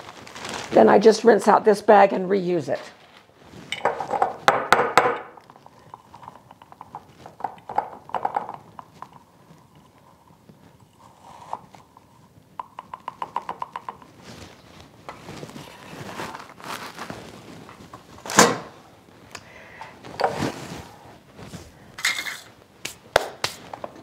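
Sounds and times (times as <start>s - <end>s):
knocks on funnel and jar: 3.8s - 5.3s
dried egg crackling in funnel: 5.4s - 18.2s.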